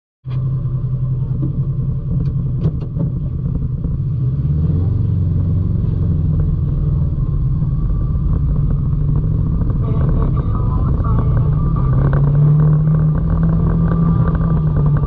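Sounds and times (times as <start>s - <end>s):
atv engine running: 3.2s - 15.0s.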